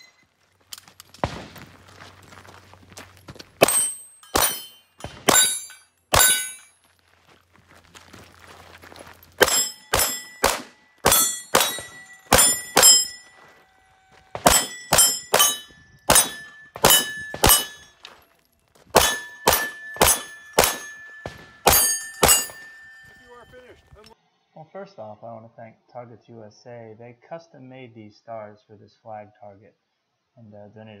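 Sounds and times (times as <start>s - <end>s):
ringing ping of steel targets: 3.6s - 6.8s, 9.4s - 18.2s, 18.9s - 24.0s
rapid handgun fire: 9.4s - 13.0s, 14.4s - 17.8s, 18.9s - 20.9s.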